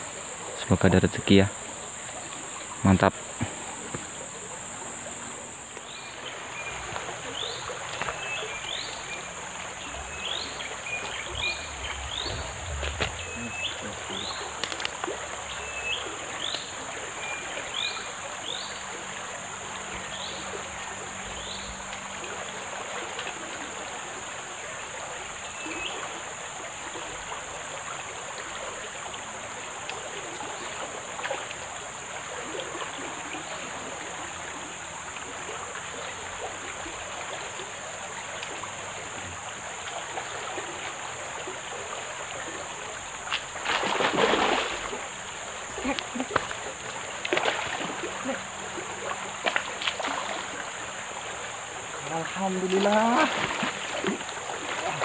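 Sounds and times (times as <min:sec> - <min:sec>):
high-pitched drone: 0:00.0 - 0:06.7, 0:09.7 - 0:15.0
fish splashing: 0:00.0 - 0:17.0, 0:41.4 - 0:55.0
river rushing: 0:00.0 - 0:24.2, 0:30.2 - 0:55.0.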